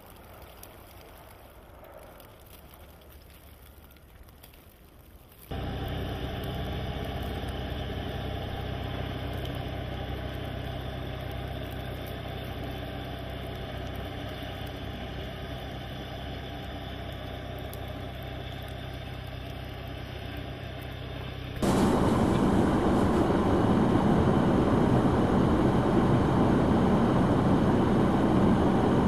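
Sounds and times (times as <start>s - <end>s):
snowblower throwing snow: 5.5s - 13.0s, 21.6s - 29.0s
small tractor engine running: 5.5s - 29.0s.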